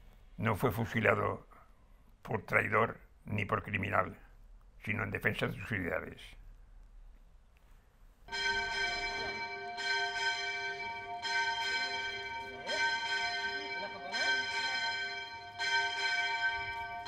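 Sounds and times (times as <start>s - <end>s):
church bell tolling: 8.3s - 17.0s.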